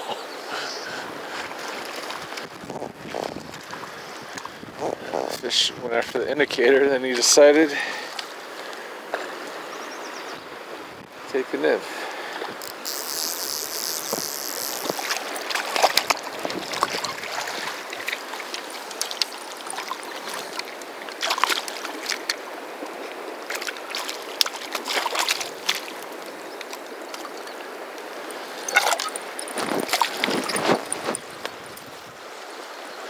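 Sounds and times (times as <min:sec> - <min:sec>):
river water rushing: 0:06.9 - 0:33.0
fish splashing in landing net: 0:13.5 - 0:22.3, 0:23.5 - 0:26.0.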